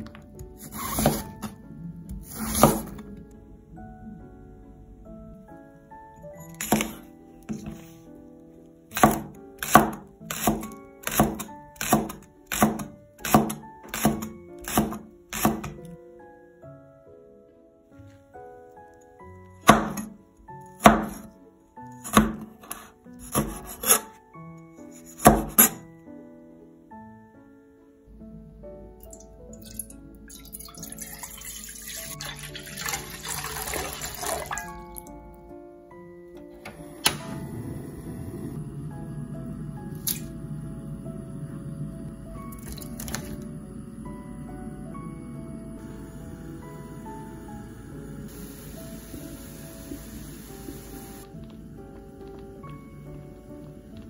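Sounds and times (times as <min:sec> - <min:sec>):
light background music: 0:00.0 - 0:54.0
water pouring into a pan: 0:29.0 - 0:35.0.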